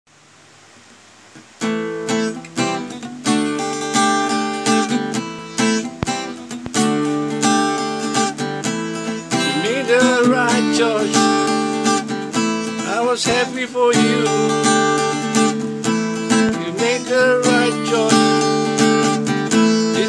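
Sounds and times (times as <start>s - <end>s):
acoustic guitar strumming: 1.6s - 20.0s
man singing: 9.3s - 20.0s.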